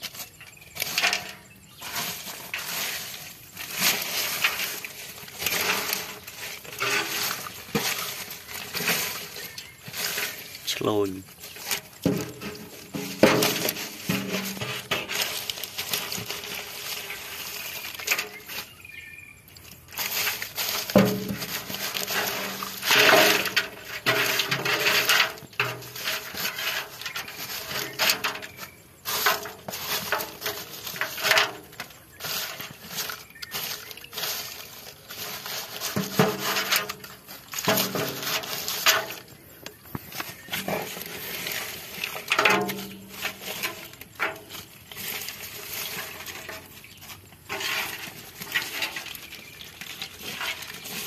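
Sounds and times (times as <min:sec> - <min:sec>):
wet leaves and twigs rustling: 0:00.0 - 0:51.0.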